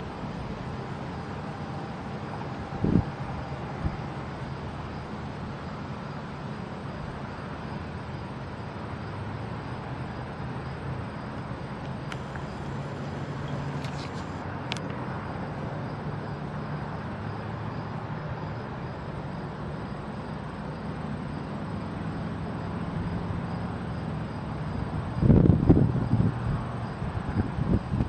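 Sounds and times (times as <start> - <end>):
distant road traffic hum: 0.0 - 28.0
wind buffeting microphone: 2.6 - 4.2, 24.8 - 28.0.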